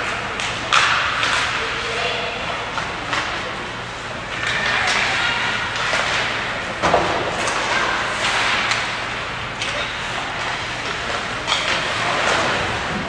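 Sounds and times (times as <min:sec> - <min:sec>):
hockey stick and puck hits: 0:00.1 - 0:02.0, 0:04.3 - 0:09.0, 0:09.6 - 0:12.9.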